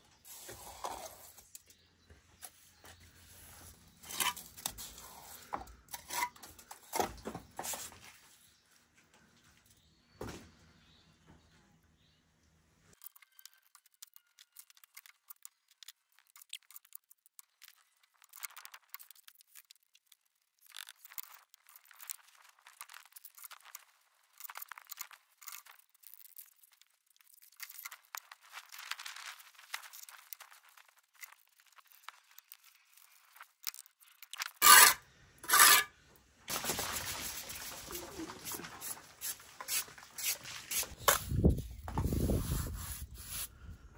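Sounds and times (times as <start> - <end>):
trowel scraping mortar: 4.0 - 6.5, 34.2 - 36.0, 37.5 - 43.5.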